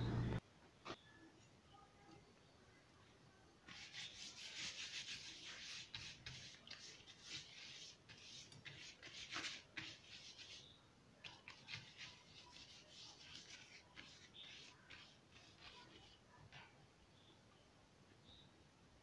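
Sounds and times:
fingers rubbing on leaf: 3.7s - 10.7s, 11.3s - 16.2s.

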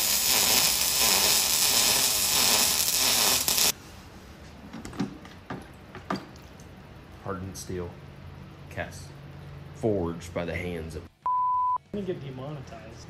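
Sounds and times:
arc welder crackling: 0.0s - 3.8s.

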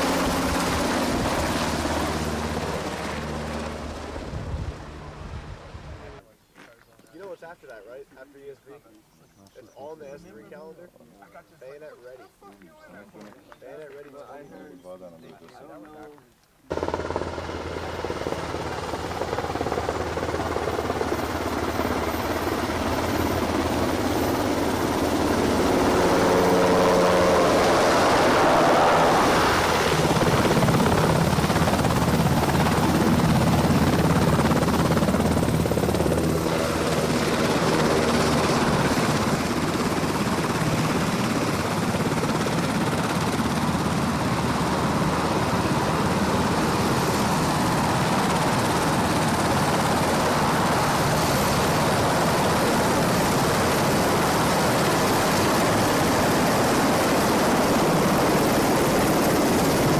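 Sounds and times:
helicopter rotor and turbine noise: 0.0s - 6.3s, 7.0s - 59.9s.

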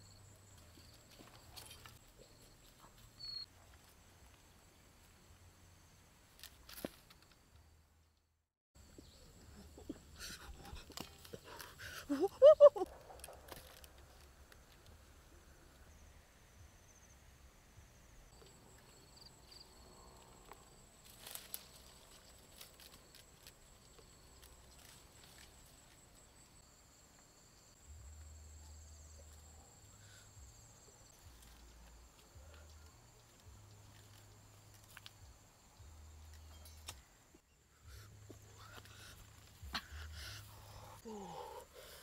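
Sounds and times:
twigs crackling underfoot: 6.3s - 7.5s, 10.4s - 15.0s, 18.4s - 26.6s, 31.1s - 35.5s
insect trilling: 9.0s - 14.0s, 37.4s - 42.0s.

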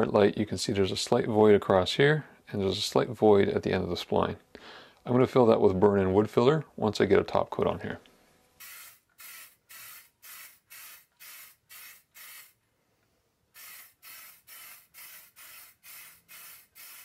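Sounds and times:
spray can hissing bursts: 8.6s - 12.6s, 13.6s - 17.0s.

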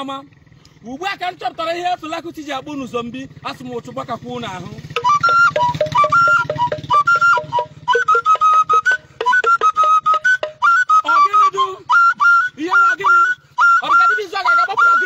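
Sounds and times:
flute playing fast tune: 4.9s - 15.0s.

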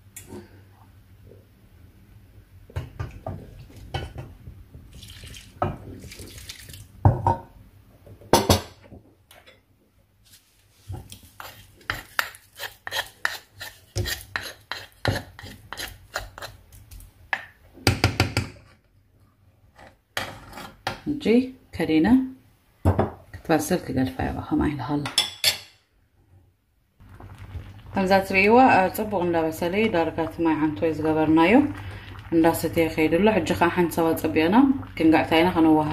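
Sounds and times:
water pouring into pot: 4.9s - 7.0s, 27.0s - 35.9s
spoon scraping a saucepan: 11.2s - 16.6s.

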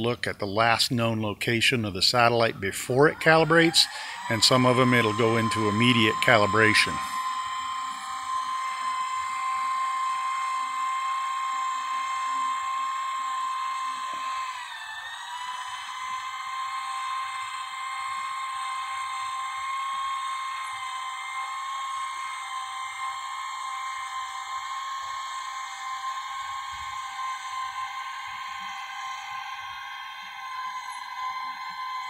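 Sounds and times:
satellite dish motor whining: 2.8s - 32.0s.

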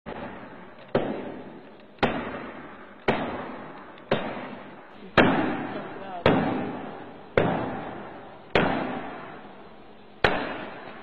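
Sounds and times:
heavy echoing impacts: 0.1s - 11.0s.

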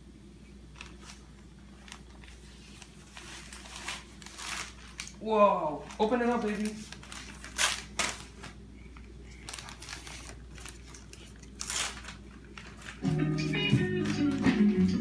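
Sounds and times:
wrapping paper crinkling and tearing: 0.8s - 13.0s
guitar music: 13.0s - 15.0s.

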